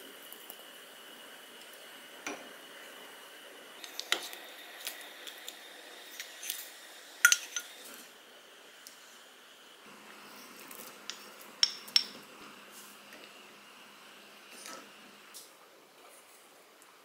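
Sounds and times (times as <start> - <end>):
stew simmering hiss: 0.0 - 17.0
spoon and bowl clinking on pot: 7.2 - 7.7.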